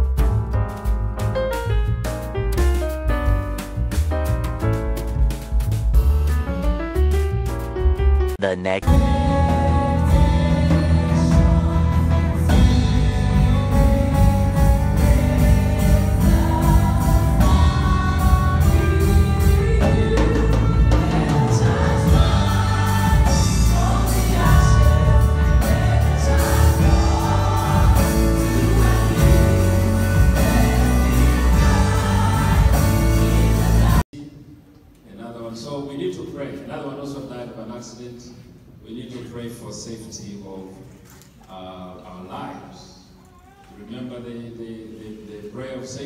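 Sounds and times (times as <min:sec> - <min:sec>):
band accompaniment: 0:00.0 - 0:34.0
women's choir singing gospel: 0:09.4 - 0:34.0.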